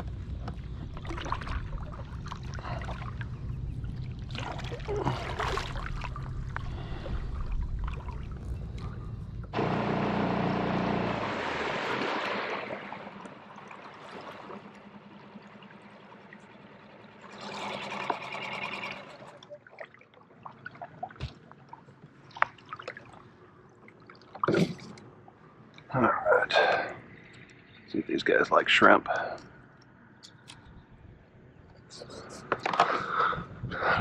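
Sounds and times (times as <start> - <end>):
water trickling and splashing: 0.0 - 9.6, 11.3 - 25.8.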